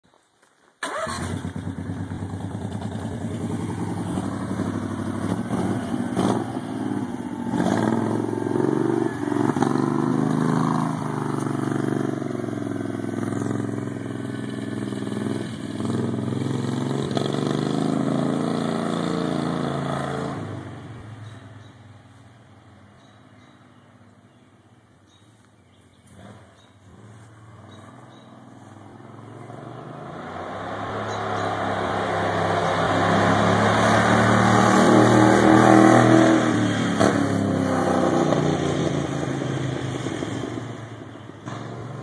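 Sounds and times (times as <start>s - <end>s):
golf cart engine running: 0.8s - 16.7s.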